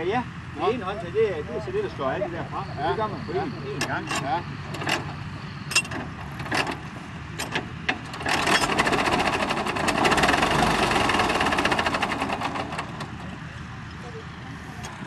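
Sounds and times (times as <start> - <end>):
diesel engine clattering: 0.0 - 15.0
tractor engine clicks: 3.7 - 14.0, 14.8 - 15.0.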